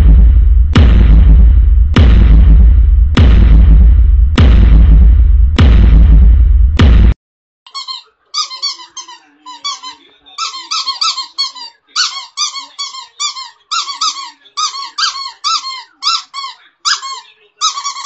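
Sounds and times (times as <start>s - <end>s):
puppy squealing: 7.7s - 18.0s.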